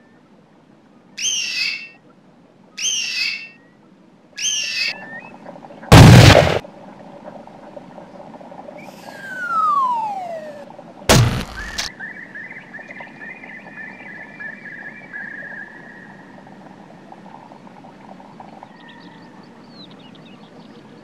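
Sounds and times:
loud thud: 5.9 - 6.6, 11.1 - 11.8
cartoon falling whistle: 8.8 - 10.6
thin high wavering tone: 8.8 - 10.6.

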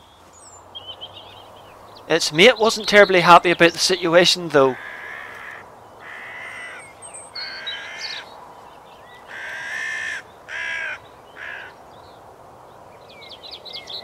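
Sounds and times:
faint small birds chirping: 0.0 - 14.0
crow cawing: 4.7 - 8.3, 9.2 - 11.8.

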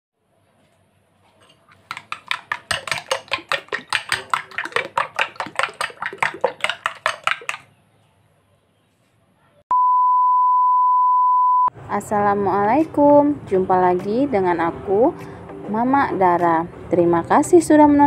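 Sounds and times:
spoon beating eggs in glass bowl: 1.3 - 7.7.

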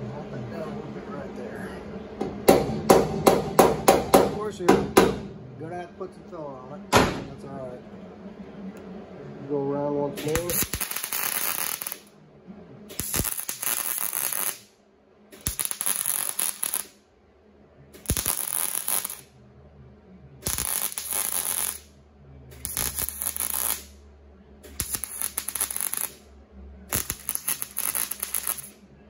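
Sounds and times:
welding arc crackle: 10.2 - 12.1, 12.9 - 14.7, 15.4 - 17.0, 18.0 - 19.3, 20.4 - 21.9, 22.6 - 24.0, 24.7 - 26.2, 26.9 - 28.8.

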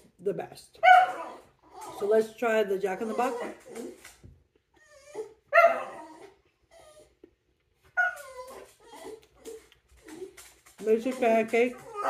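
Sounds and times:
dog crying high-pitched: 0.8 - 2.1, 2.9 - 4.0, 4.8 - 7.1, 8.0 - 9.6, 11.8 - 12.0.

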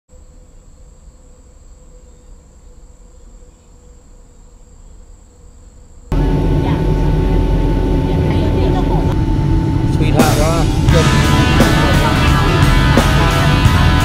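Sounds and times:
high-pitched insect trill: 0.1 - 6.2
airliner cabin drone: 6.1 - 14.0
low rumble: 6.1 - 14.0.

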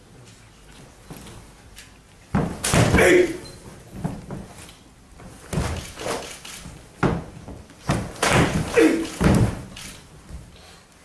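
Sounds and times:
karate strikes slapping and thudding: 2.3 - 3.4, 5.2 - 10.0
person shouting: 2.8 - 3.4, 8.5 - 9.2.

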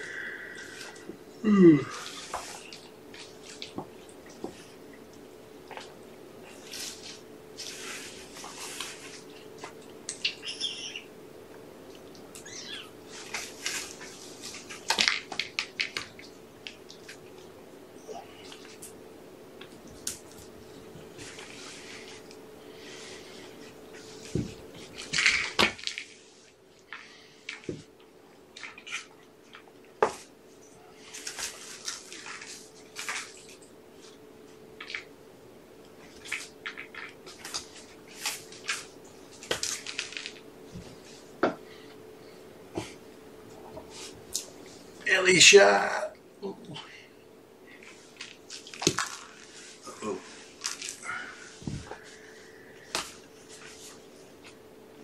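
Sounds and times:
faint steady hum: 0.0 - 55.0
kittens scuffling on carpet: 5.8 - 9.8
cat chirping: 10.2 - 11.1, 12.4 - 13.0.

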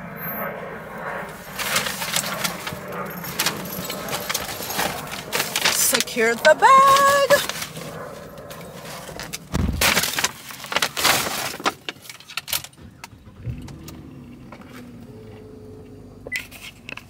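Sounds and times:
paper bag rustling: 1.3 - 12.7
keys jangling: 1.4 - 7.5
steady car hum: 12.0 - 17.0.

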